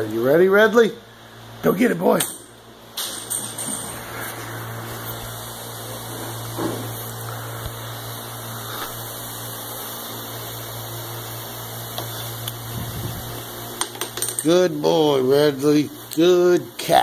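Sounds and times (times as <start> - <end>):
background hum and hiss: 0.0 - 17.0.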